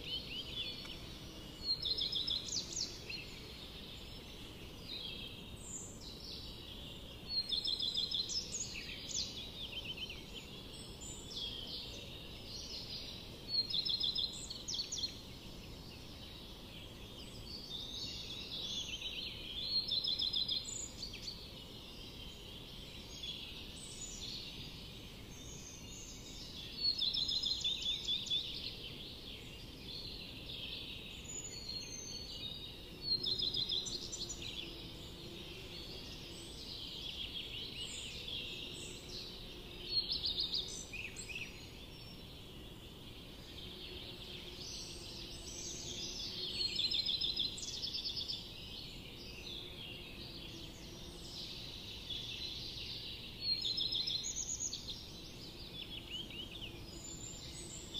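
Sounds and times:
small birds chirping and trilling: 0.0s - 57.9s
steady low hiss: 0.0s - 57.9s.

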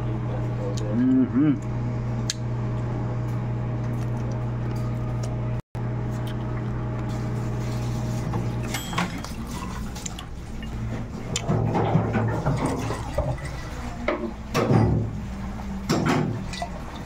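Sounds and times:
steady low hum: 0.0s - 17.0s
glass clink: 8.7s - 9.5s.

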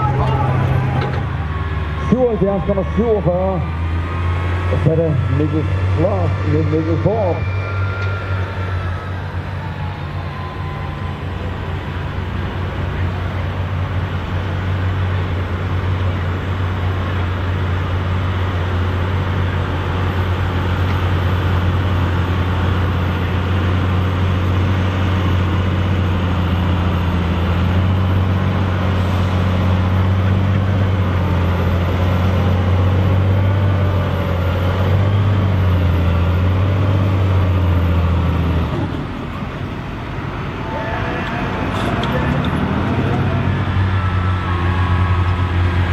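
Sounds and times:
tractor diesel engine droning: 0.0s - 45.9s.

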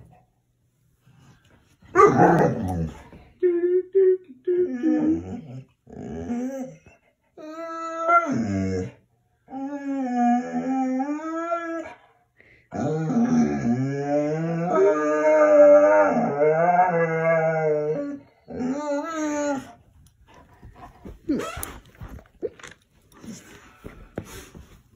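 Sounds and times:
dog whining and howling: 1.9s - 19.8s.

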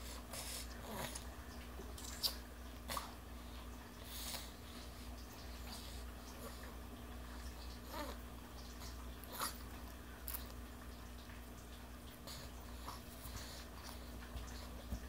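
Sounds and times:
toddler chewing and sucking fingers: 1.9s - 3.2s.

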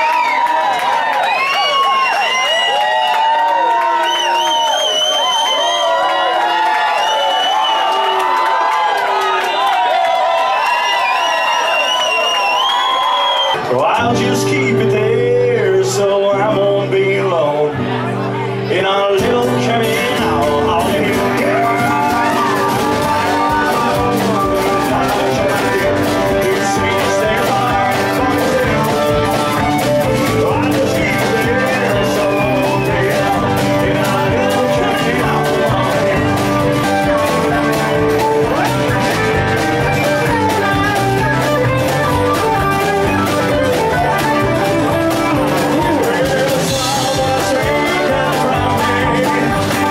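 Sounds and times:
drums: 0.0s - 16.9s, 18.9s - 49.9s
blues rock band playing: 10.2s - 49.9s.

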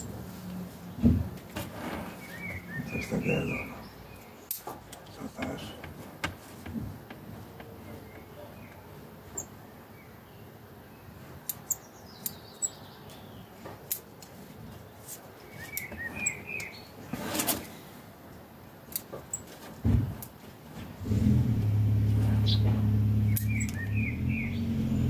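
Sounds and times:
small birds chirping: 0.0s - 18.0s, 21.6s - 25.0s
scissors snipping twigs: 23.3s - 23.9s.

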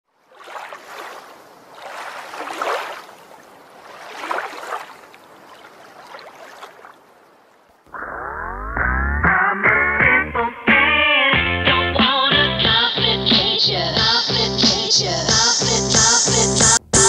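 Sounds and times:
water lapping in swells: 0.1s - 7.9s
music with rising glide: 8.1s - 10.8s.

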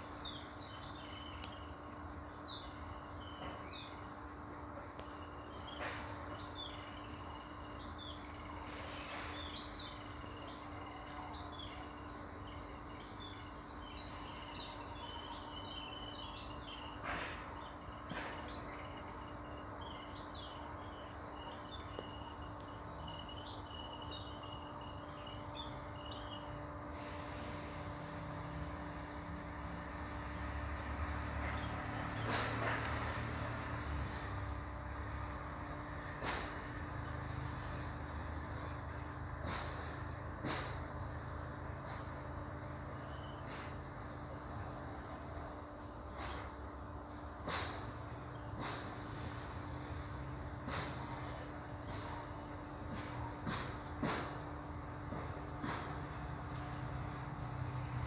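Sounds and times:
steady high hum: 0.0s - 32.1s
wild birds chirping: 0.0s - 58.0s.

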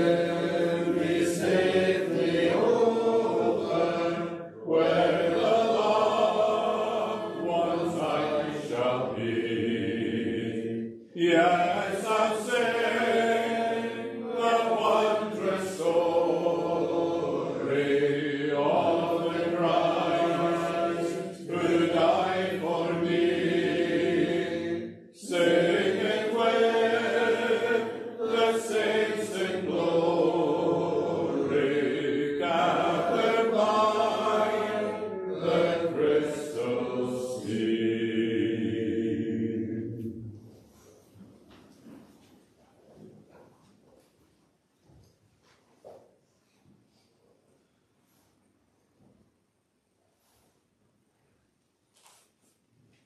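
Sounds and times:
congregation singing a hymn: 0.0s - 40.5s.

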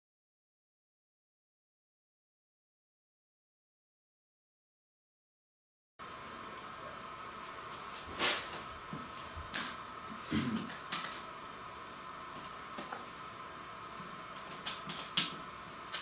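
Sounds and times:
steady hum: 6.0s - 16.0s.

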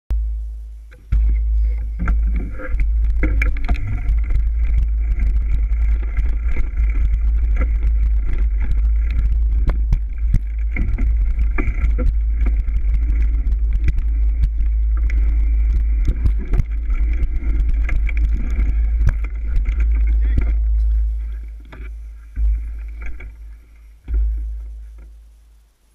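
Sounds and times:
bike rattles and knocks: 0.9s - 25.2s
wind buffeting microphone: 1.1s - 21.5s.

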